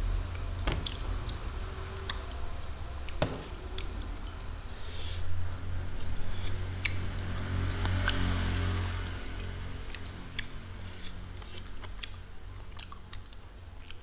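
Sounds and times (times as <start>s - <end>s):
low steady hum: 0.0s - 14.0s
person chewing food: 0.2s - 4.2s, 5.5s - 14.0s.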